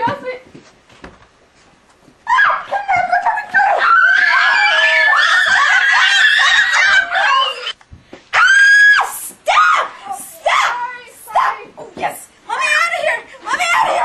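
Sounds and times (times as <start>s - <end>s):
girls screaming: 2.3s - 7.8s, 8.4s - 11.6s.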